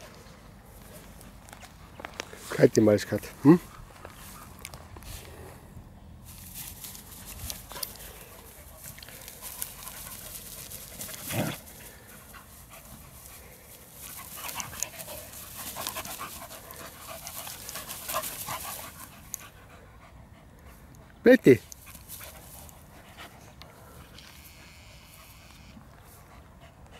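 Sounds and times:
scuffling through dry grass: 0.0s - 5.6s, 6.2s - 19.3s
dogs panting: 0.0s - 26.9s.

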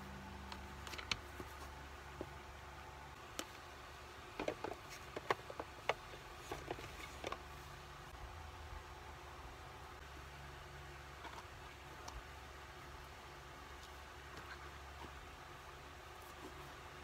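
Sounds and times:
low steady room hum: 0.0s - 17.0s
hands handling paper and plastic: 0.4s - 2.4s, 3.2s - 7.7s.

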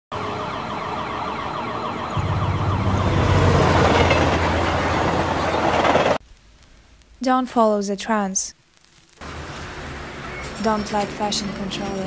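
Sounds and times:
rapid falling whine: 0.2s - 6.2s
deep hum: 2.2s - 5.3s
train-like rumble: 2.2s - 6.2s.

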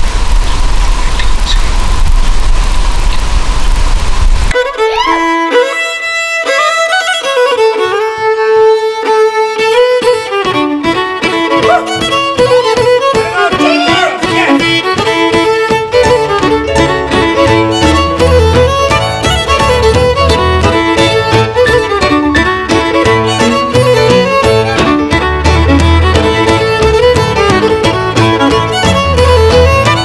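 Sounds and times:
steady rumbling noise: 0.0s - 4.6s
fiddle melody with sliding notes: 4.5s - 30.0s.

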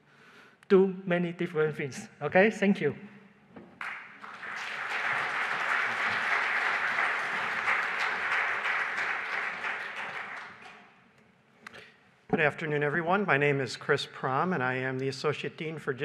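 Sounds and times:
audience applauding: 3.8s - 10.9s.

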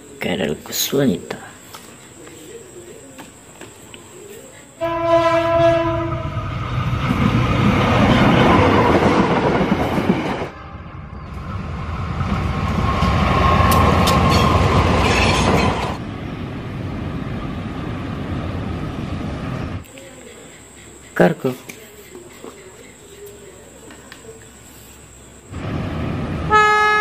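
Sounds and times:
locomotive horn: 4.8s - 6.5s, 26.5s - 27.0s
train wheels rolling on rails: 6.0s - 24.2s.

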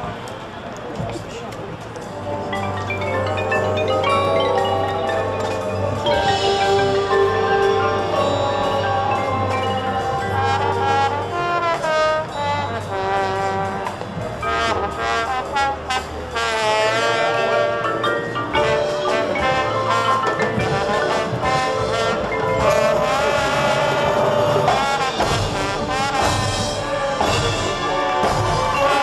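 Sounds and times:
marching band brass: 0.0s - 29.0s
mallet percussion: 2.0s - 13.4s, 16.4s - 29.0s.

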